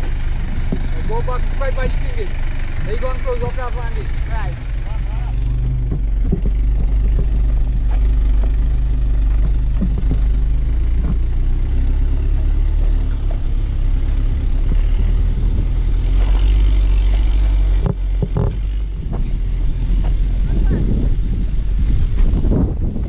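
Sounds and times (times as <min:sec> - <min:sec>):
vehicle engine running: 0:00.0 - 0:23.0
knocks and rattles: 0:04.1 - 0:20.3.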